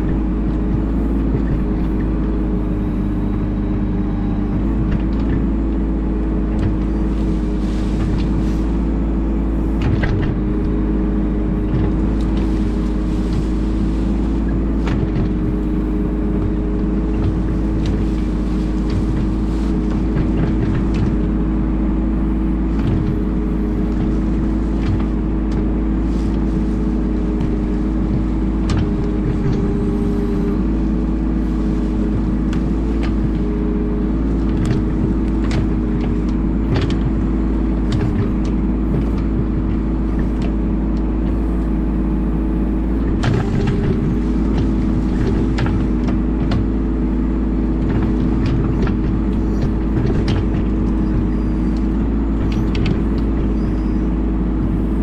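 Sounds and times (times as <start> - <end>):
excavator diesel engine running: 0.0 - 55.0
bucket scraping soil: 6.8 - 9.8, 11.3 - 21.4, 22.5 - 54.7.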